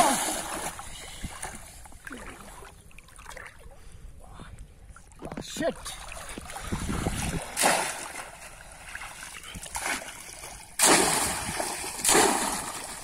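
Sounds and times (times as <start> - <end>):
fish trap splashing in water: 7.4 - 8.4, 10.8 - 13.0.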